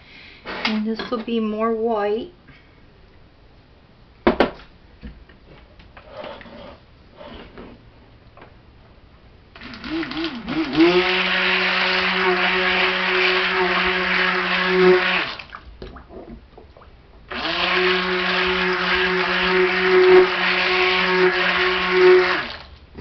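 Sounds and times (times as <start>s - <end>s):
stick blender motor humming: 9.6s - 15.4s, 17.3s - 22.6s.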